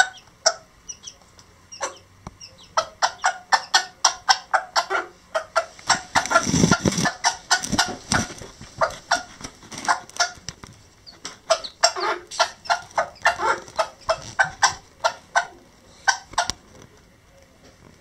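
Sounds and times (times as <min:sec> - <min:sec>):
hen clucking low: 0:00.0 - 0:10.5, 0:11.1 - 0:16.6
chicks peeping: 0:00.0 - 0:17.6.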